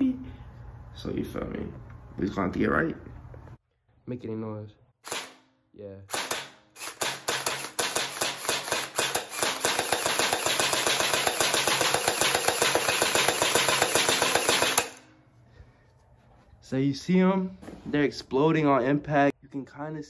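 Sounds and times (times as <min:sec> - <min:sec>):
gel blaster firing full auto: 0:05.0 - 0:05.4, 0:06.1 - 0:15.1.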